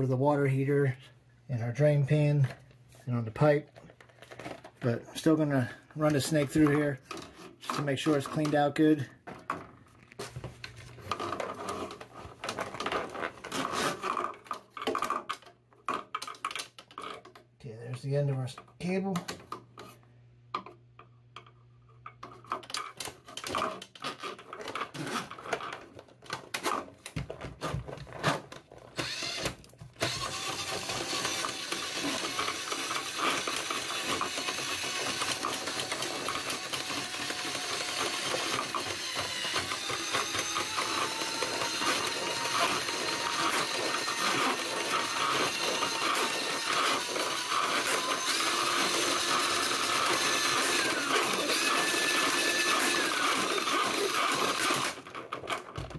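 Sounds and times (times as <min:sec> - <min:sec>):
drain snake motor running: 0:30.0 - 0:55.0.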